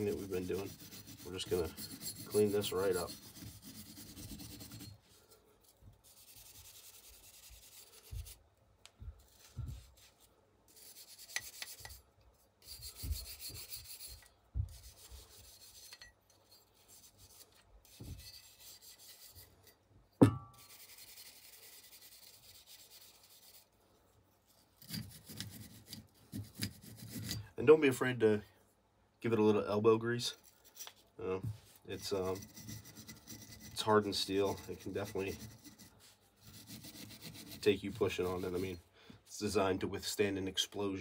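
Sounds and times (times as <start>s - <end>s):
wire brush scrubbing metal: 0.0s - 8.4s, 10.7s - 19.8s, 31.8s - 38.8s.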